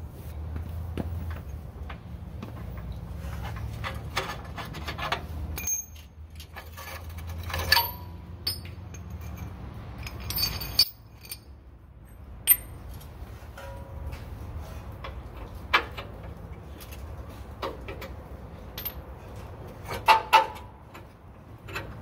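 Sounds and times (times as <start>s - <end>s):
metal tools clinking and rattling: 2.7s - 14.3s, 15.0s - 20.6s.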